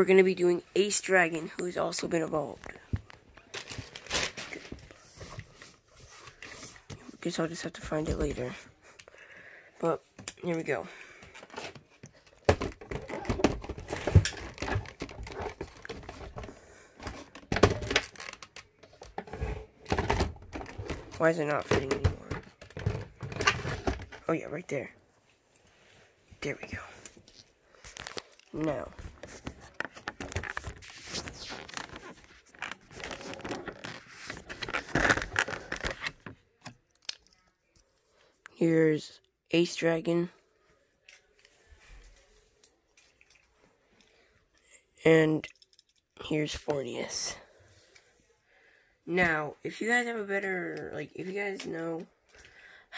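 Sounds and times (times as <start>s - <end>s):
handling clicks and rustles: 10.1s - 24.3s, 26.7s - 38.0s.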